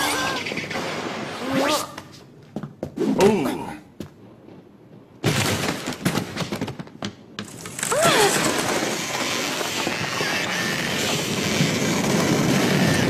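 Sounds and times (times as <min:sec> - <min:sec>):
rumble of crumbling debris: 0:04.0 - 0:13.0
cracking and smashing impacts: 0:05.2 - 0:13.0.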